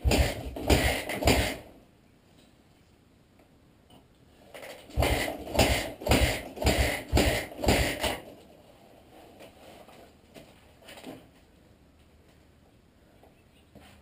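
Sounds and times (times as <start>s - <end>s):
motorcycle kickstart kicks: 0.0s - 1.6s
engine turning over: 0.0s - 1.7s, 4.9s - 8.3s.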